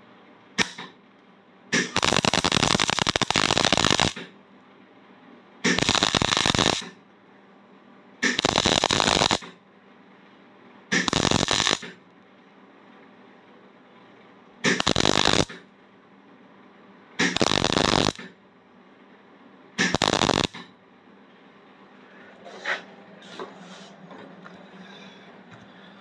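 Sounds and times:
welder arc crackling: 0.6 - 1.0, 1.8 - 4.3, 5.6 - 7.0, 8.2 - 9.6, 10.9 - 12.0, 14.6 - 15.7, 17.2 - 18.4, 19.8 - 20.7.

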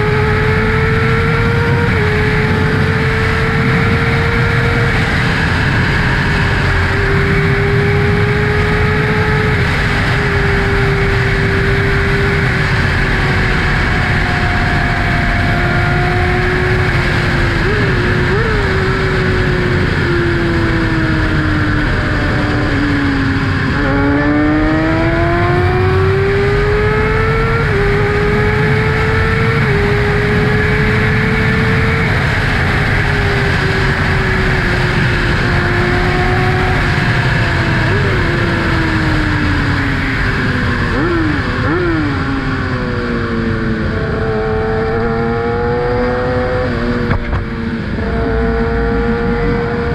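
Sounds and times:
motorcycle engine revving: 0.0 - 49.9.

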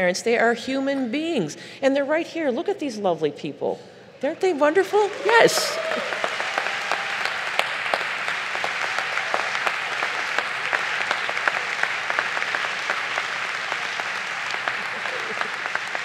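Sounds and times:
audience applauding: 4.9 - 16.0.

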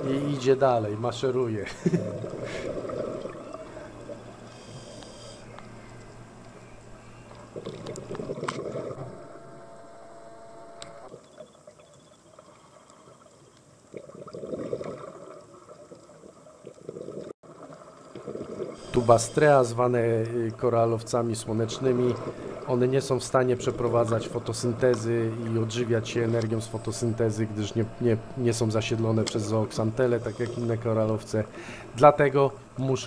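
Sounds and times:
diver breathing out bubbles: 2.1 - 5.9, 22.1 - 22.7, 31.5 - 32.0.

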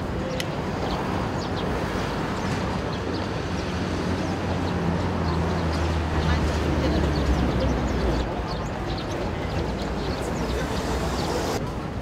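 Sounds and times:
traffic rumble: 0.0 - 12.0.

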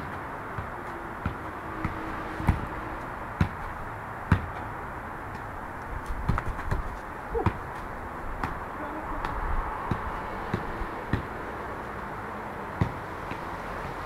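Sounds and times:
steady background noise: 0.0 - 14.0.

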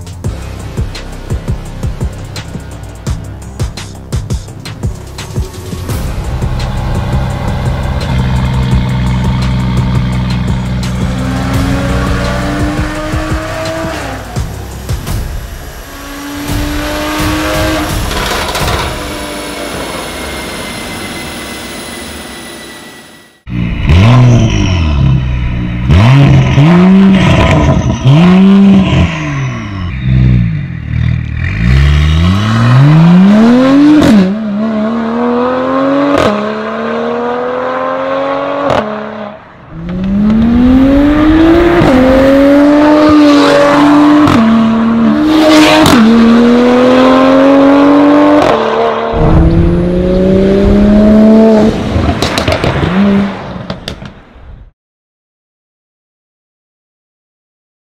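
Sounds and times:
car engine revving: 0.3 - 53.8
car accelerating through gears: 31.4 - 53.6.

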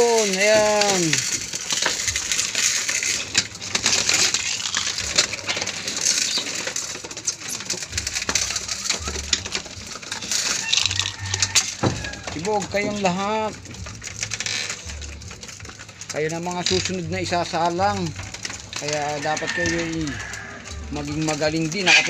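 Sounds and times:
beaks pecking grain on metal: 0.0 - 22.0
pigeon wing flutters: 18.8 - 20.6.

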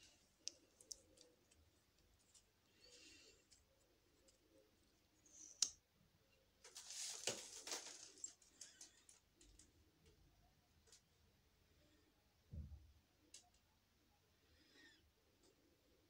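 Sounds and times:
scraping and rustling: 6.6 - 9.0.

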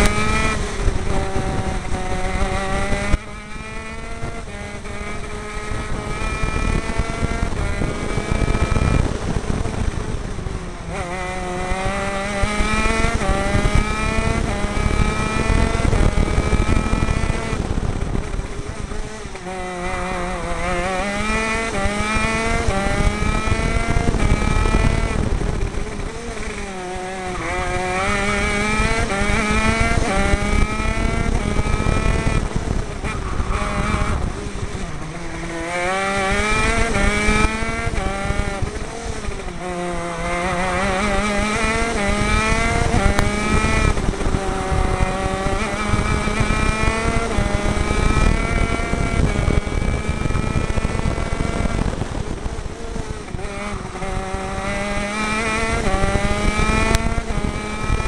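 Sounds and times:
kart engine revving with upshifts: 0.0 - 58.0.

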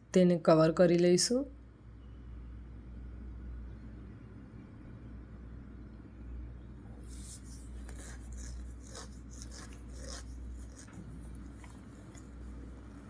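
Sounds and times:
steady low hum: 1.5 - 13.0
fingers rubbing dough in mould: 7.0 - 12.8.

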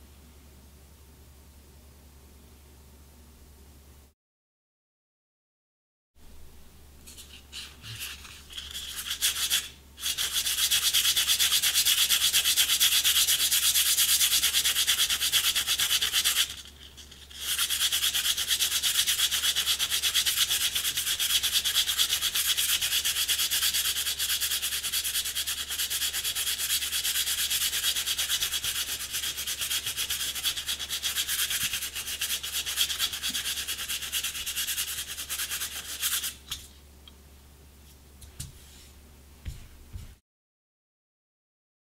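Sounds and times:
sandpaper scratching on reed: 7.5 - 36.4.

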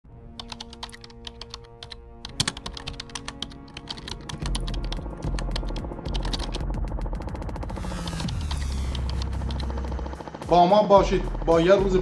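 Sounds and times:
background music: 0.1 - 12.0
keyboard typing clicks: 0.3 - 6.6, 7.8 - 9.8
heavy bass: 4.4 - 12.0.

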